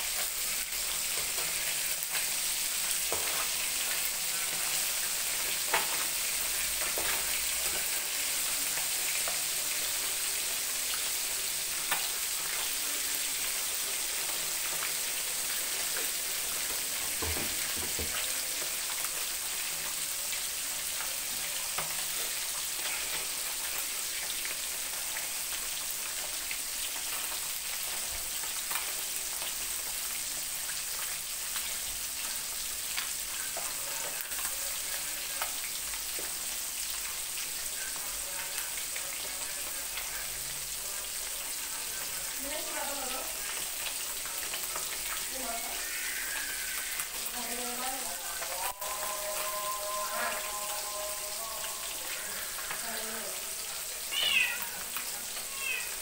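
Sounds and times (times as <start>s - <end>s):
fish sizzling in hot oil: 0.0s - 56.0s.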